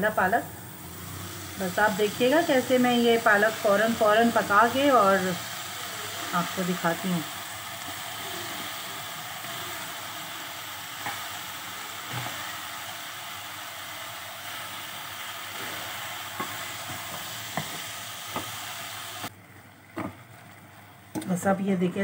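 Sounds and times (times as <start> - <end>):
spinach sizzling in hot oil: 0.0 - 19.3.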